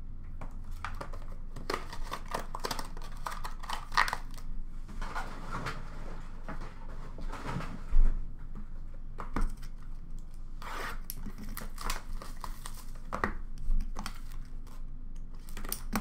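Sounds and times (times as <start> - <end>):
wrapping tearing and crinkling: 0.7 - 4.5, 10.6 - 16.0.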